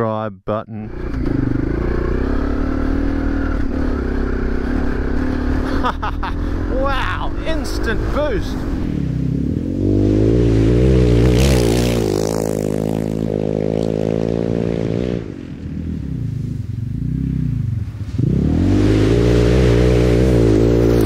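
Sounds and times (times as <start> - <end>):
motorcycle engine revving: 0.8 - 21.0
dirt spraying from tyre: 8.5 - 21.0.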